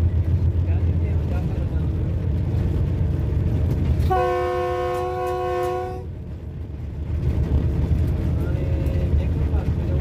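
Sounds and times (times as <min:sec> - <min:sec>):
locomotive rumbling on track: 0:00.0 - 0:10.0
locomotive air horn blast: 0:04.0 - 0:06.1.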